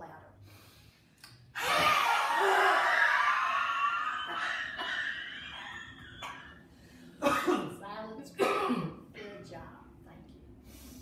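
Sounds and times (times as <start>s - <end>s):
woman's breathy roar: 1.6s - 5.0s.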